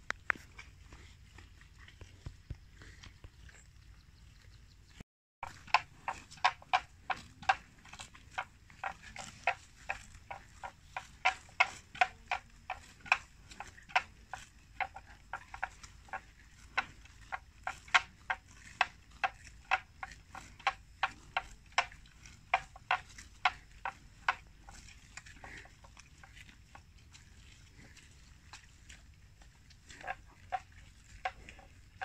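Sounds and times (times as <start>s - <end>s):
buffalo tearing grass: 5.4s - 32.0s.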